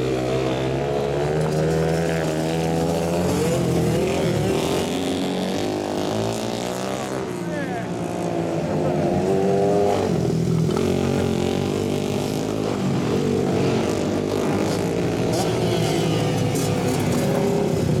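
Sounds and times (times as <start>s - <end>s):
racing motorcycle engines: 0.0s - 18.0s.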